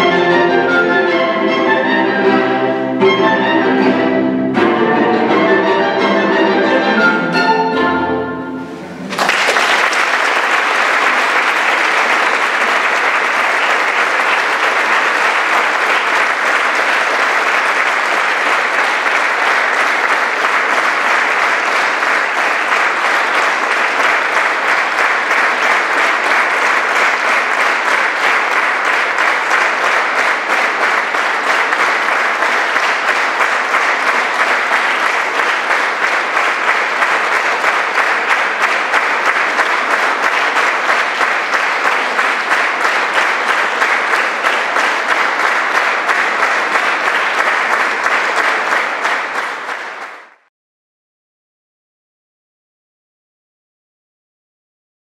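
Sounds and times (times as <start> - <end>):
strings and woodwind playing: 0.0 - 9.2
audience applause: 8.7 - 50.5.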